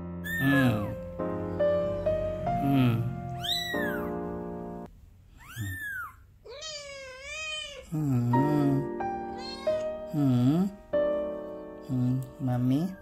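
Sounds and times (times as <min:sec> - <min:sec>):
keyboard background music: 0:00.0 - 0:04.9, 0:08.2 - 0:13.0
kitten mewing: 0:00.2 - 0:01.0, 0:02.6 - 0:04.1, 0:05.4 - 0:09.9.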